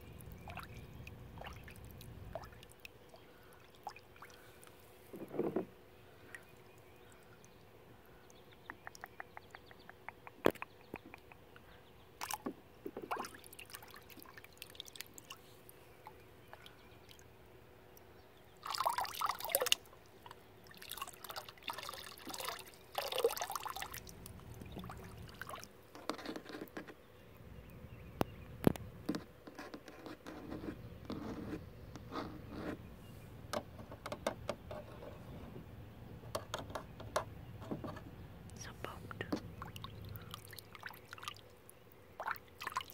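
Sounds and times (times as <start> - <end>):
water drips: 0.0 - 4.8, 12.2 - 15.4, 17.9 - 25.7, 38.6 - 42.9.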